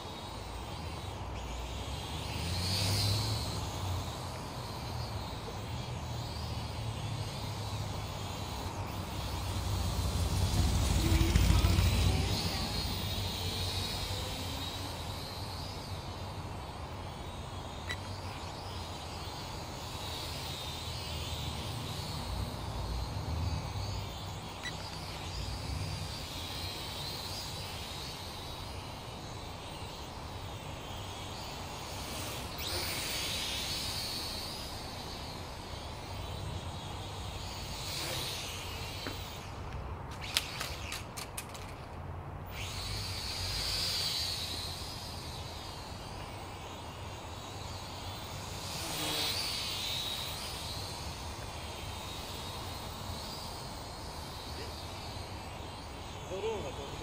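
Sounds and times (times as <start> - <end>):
toy drone propellers whining: 0.0 - 57.0
sharp clicks: 39.1 - 42.0.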